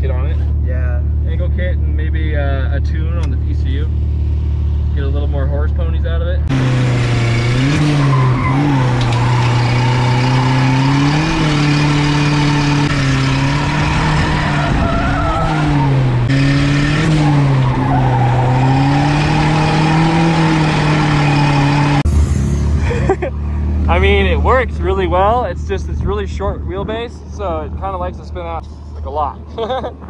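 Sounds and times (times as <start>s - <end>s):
truck engine revving high: 6.4s - 25.6s
tyres skidding: 6.4s - 29.2s.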